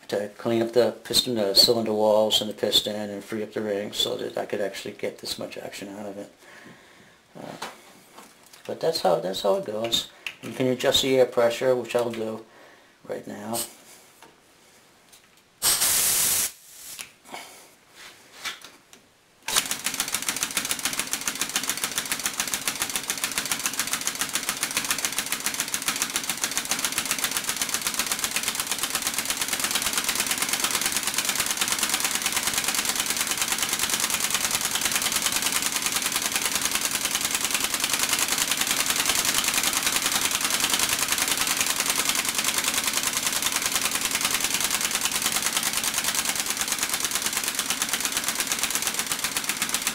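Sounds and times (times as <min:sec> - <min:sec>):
air hissing: 0:15.6 - 0:17.2
air-powered chainsaw engine running: 0:19.5 - 0:49.9.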